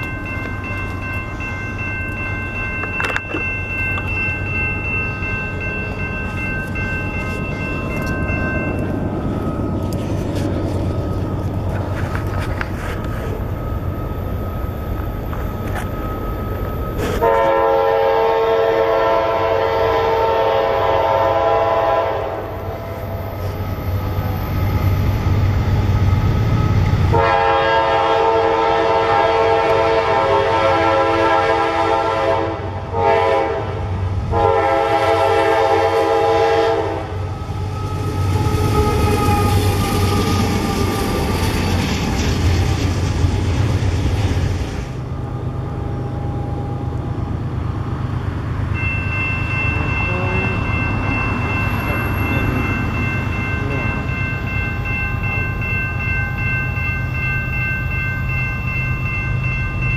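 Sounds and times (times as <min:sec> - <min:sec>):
train rumbling past: 0:00.0 - 0:59.9
locomotive air horn blasts: 0:17.0 - 0:22.9, 0:27.1 - 0:37.2.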